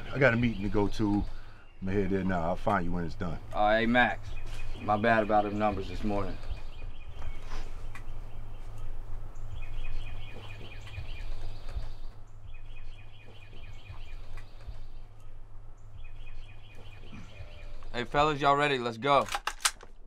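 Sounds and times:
low rumble: 0.0 - 18.4
bird singing rapid trills: 0.0 - 18.6.

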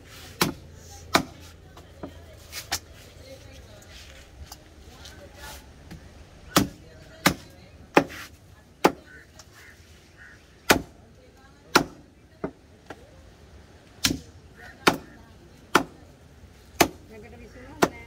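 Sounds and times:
cleaver chopping on wooden block: 0.4 - 1.4.

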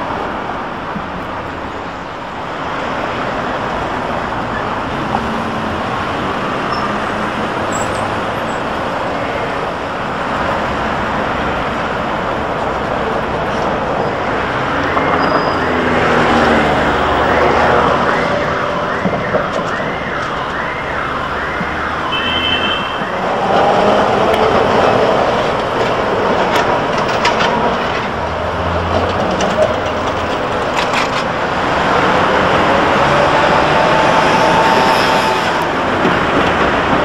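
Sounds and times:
city traffic noise: 0.0 - 37.0
emergency vehicle siren wailing: 12.8 - 28.1, 28.9 - 37.0.

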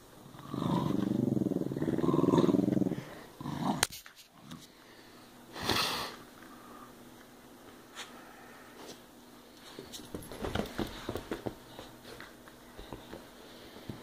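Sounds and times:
dog growling: 0.2 - 3.9.

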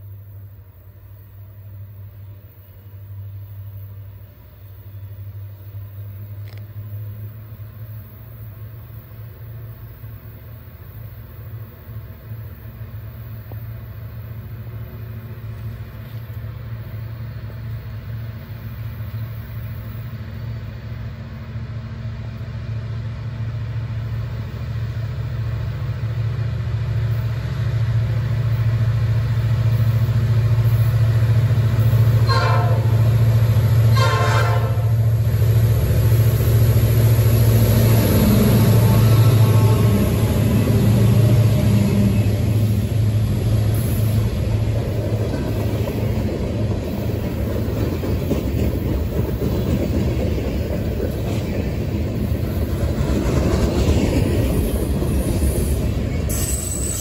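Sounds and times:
diesel locomotive engine drone: 0.0 - 57.0
train horn blasts: 32.2 - 33.2, 33.8 - 35.1.

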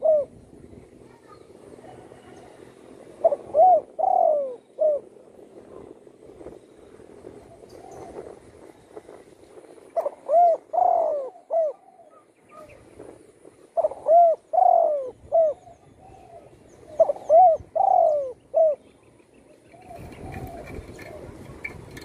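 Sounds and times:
dove cooing: 0.0 - 0.5, 1.2 - 6.1, 9.9 - 12.8, 13.6 - 18.9, 19.5 - 22.0.

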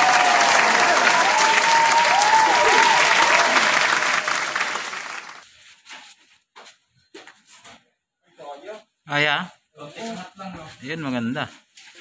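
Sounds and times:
crowd applause: 0.0 - 5.4.

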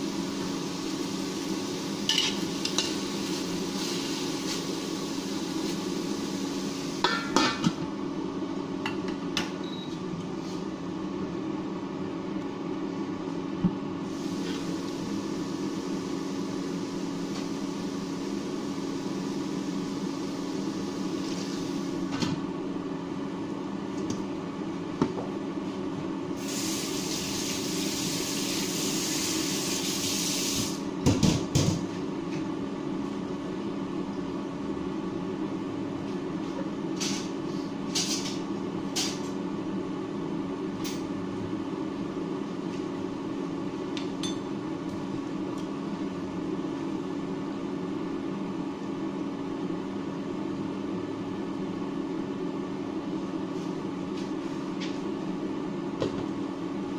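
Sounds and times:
wok sizzling: 0.0 - 7.4, 26.4 - 30.8
induction cooktop hum: 0.0 - 56.9.

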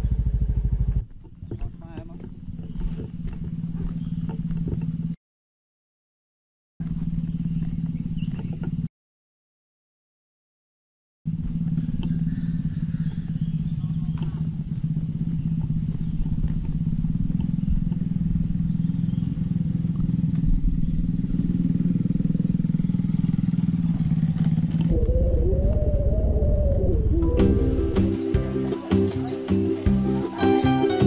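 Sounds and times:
small motorcycle engine running: 0.0 - 5.2, 6.8 - 8.9, 11.3 - 25.4, 27.3 - 31.0
high-pitched buzz: 11.3 - 31.0
music: 27.2 - 31.0.

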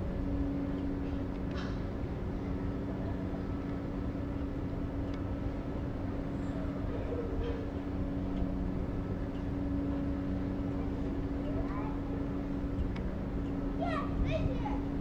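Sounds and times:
motor running with low hum: 0.0 - 15.0
faint ticks: 4.4 - 5.3.

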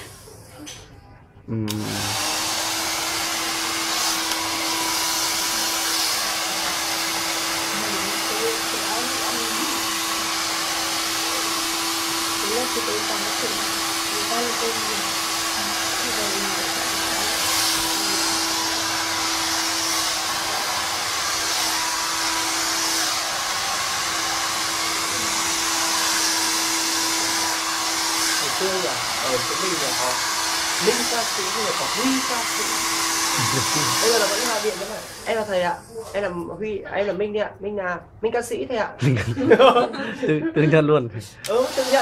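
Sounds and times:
hair dryer blowing: 1.7 - 36.3, 41.4 - 42.0.

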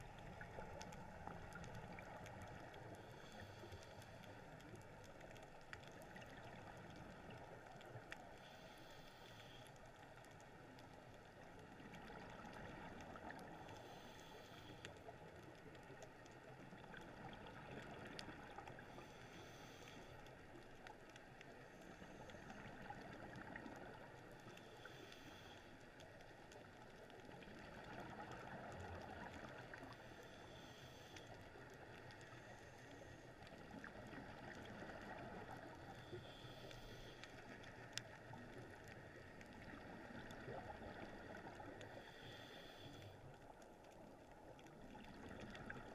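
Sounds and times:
underwater regulator breathing: 8.3 - 9.9, 13.6 - 15.1, 18.7 - 20.4, 29.8 - 33.4, 35.1 - 37.9, 41.6 - 43.4.

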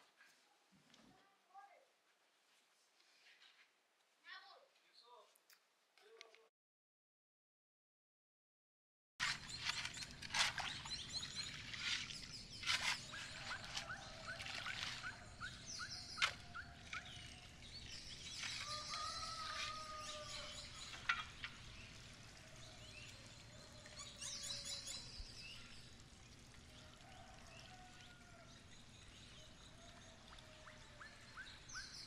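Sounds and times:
birds singing: 9.2 - 26.0, 26.8 - 32.0
stream trickling: 9.2 - 32.0.

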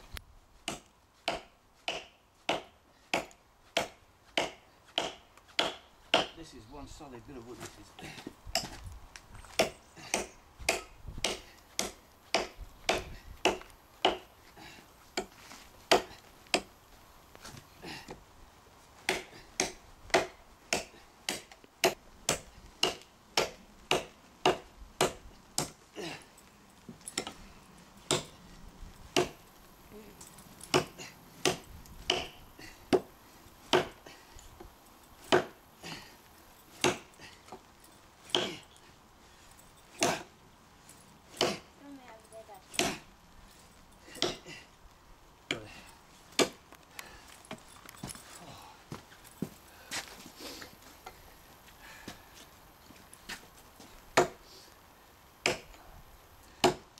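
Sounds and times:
tomahawk chopping into log: 0.7 - 6.4, 9.6 - 14.3, 28.1 - 28.4, 29.2 - 29.4, 30.7 - 33.1, 33.7 - 34.0, 35.3 - 35.6, 36.8 - 37.1, 41.4 - 41.7, 42.7 - 43.0, 46.3 - 46.6, 54.2 - 54.4, 55.4 - 55.7, 56.6 - 56.9.

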